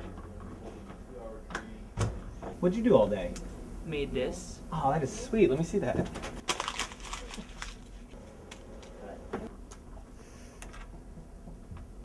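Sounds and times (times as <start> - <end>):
papers and folders rustling: 6.0 - 9.0.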